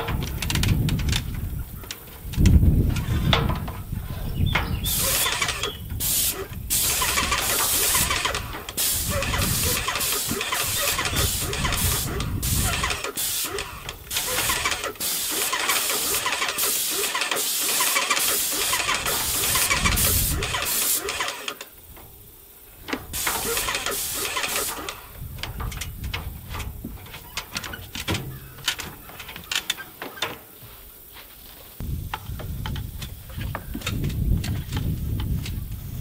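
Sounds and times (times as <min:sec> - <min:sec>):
paint sprayer hissing and pulsing: 0:04.8 - 0:25.3.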